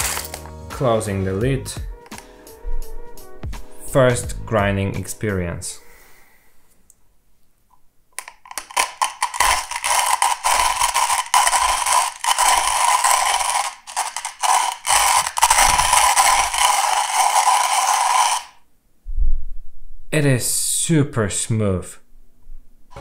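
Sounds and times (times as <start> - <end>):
hand coffee grinder crunching beans: 0.0 - 0.5, 8.2 - 18.6.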